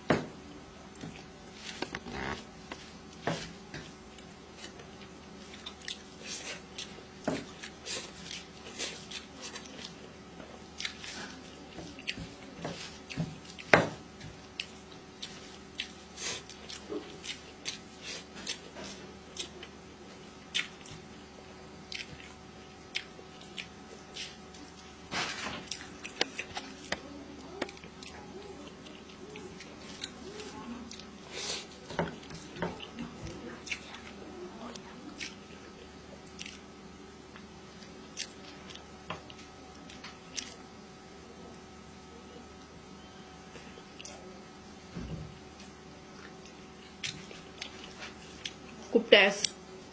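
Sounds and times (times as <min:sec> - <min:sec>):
wet smacking and chewing: 0:03.8 - 0:21.2, 0:21.8 - 0:25.0, 0:25.6 - 0:31.2, 0:31.8 - 0:40.7, 0:45.5 - 0:49.6.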